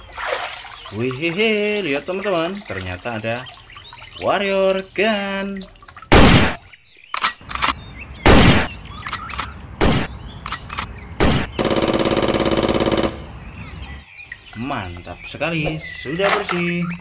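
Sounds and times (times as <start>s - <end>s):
gunshots: 6.1s - 6.6s, 8.2s - 8.7s, 9.8s - 10.1s, 11.2s - 13.3s
machine-gun rattle: 11.6s - 13.2s.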